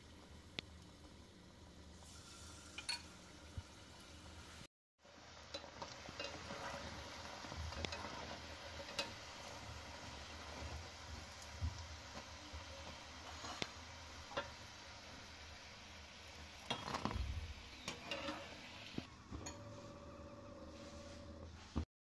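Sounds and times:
food sizzling in hot oil: 0:00.0 - 0:20.9
metal tongs clicking on pan: 0:08.8 - 0:09.2.

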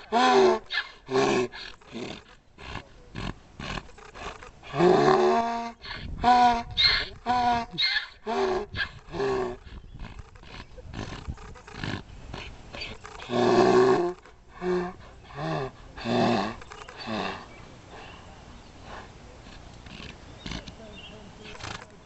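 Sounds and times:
donkey braying: 0:03.6 - 0:18.2.

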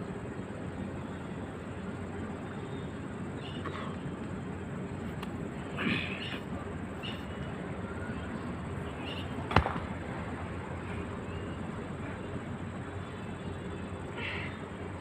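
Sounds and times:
faint bird chirps: 0:02.3 - 0:04.2, 0:07.0 - 0:09.4, 0:10.9 - 0:14.8.

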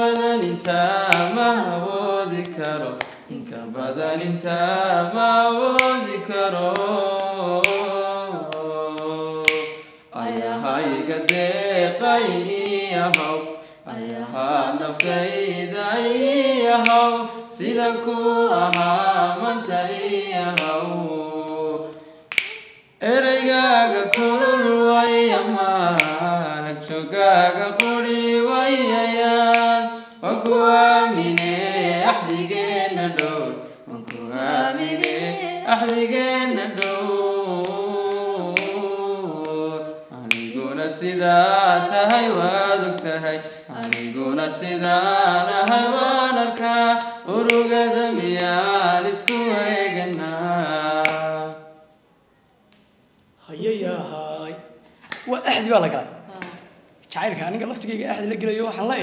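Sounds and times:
person singing unaccompanied: 0:00.0 - 0:51.8
sharp clicks keeping time: 0:05.7 - 0:13.8, 0:14.8 - 0:19.8, 0:24.0 - 0:27.0, 0:30.4 - 0:33.4, 0:34.0 - 0:39.6, 0:40.3 - 0:46.8.

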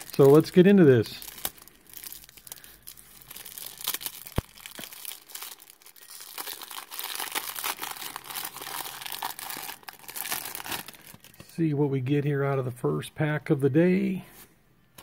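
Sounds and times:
foil wrapper crinkling and tearing: 0:00.0 - 0:11.4.

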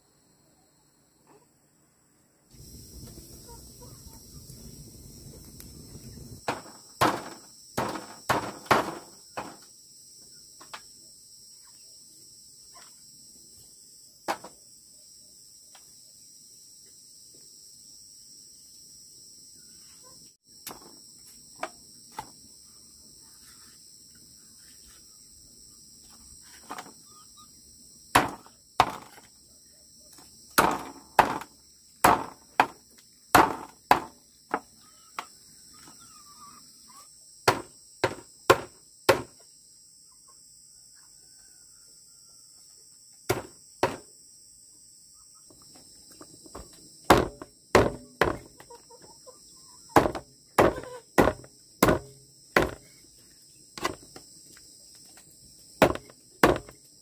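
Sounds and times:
knife chopping chicken on wood: 0:37.5 - 0:39.3, 0:43.3 - 0:44.0, 0:47.1 - 0:48.5, 0:50.0 - 0:52.8, 0:55.8 - 0:56.8
high insect chirring: 0:43.2 - 0:57.0.

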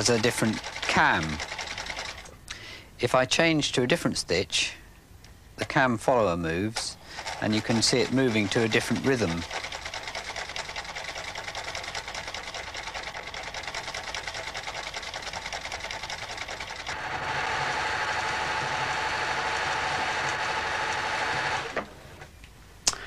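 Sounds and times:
sewing machine clattering: 0:00.0 - 0:02.3, 0:06.8 - 0:21.8.

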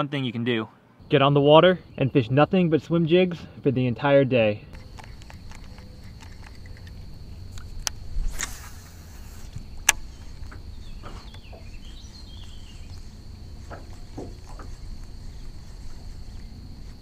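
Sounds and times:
fishing line whirring out: 0:04.8 - 0:11.2.

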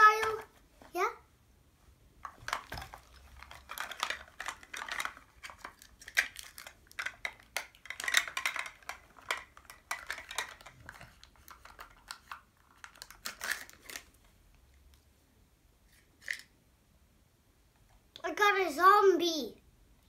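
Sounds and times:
plastic capsule clicking and scraping: 0:02.2 - 0:14.2.

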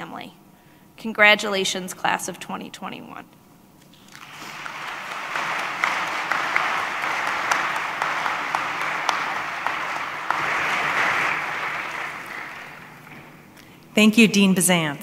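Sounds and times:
single sharp claps: 0:04.0 - 0:13.4
audience applauding: 0:04.0 - 0:13.6.

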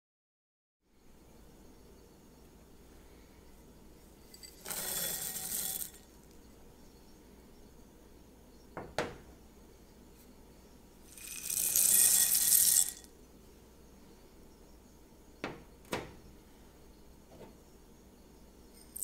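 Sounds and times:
seeds pouring into glass bowl: 0:04.2 - 0:06.3, 0:11.0 - 0:13.1, 0:18.8 - 0:19.0.

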